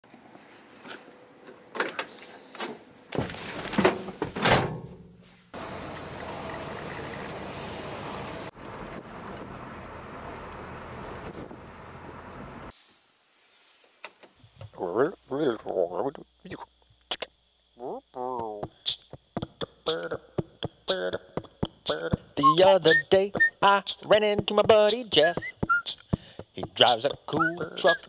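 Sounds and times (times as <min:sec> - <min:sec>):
truck engine and road noise: 0:04.7 - 0:12.7.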